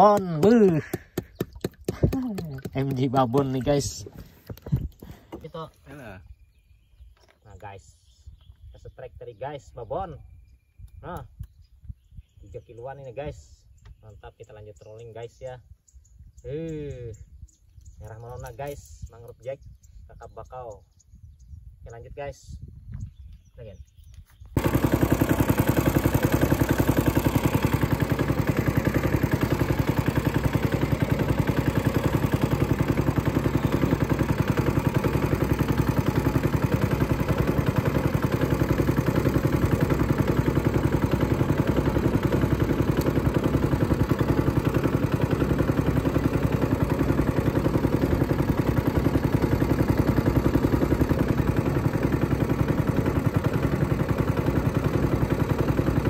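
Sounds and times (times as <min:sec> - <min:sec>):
small boat engine running: 0:00.0 - 0:07.2, 0:24.6 - 0:56.0.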